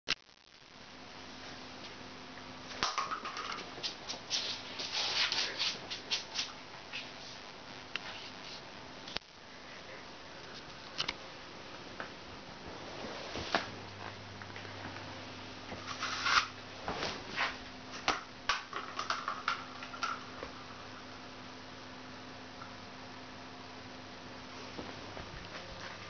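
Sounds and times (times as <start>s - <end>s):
cat scratchy rustling: 3.8s - 7.4s, 15.8s - 17.6s.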